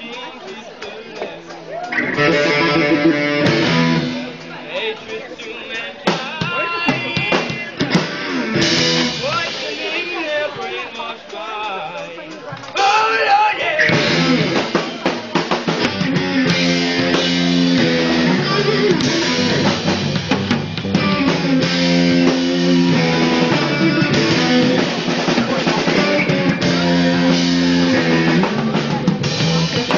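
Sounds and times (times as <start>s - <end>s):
drum kit drumming: 1.2s - 5.1s, 6.0s - 11.7s, 12.3s - 29.9s
held guitar chords: 1.9s - 4.8s, 6.9s - 9.6s, 13.8s - 29.9s.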